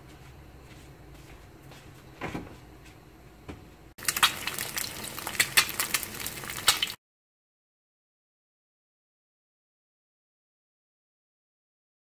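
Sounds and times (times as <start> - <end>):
egg frying in hot oil: 4.0 - 7.0.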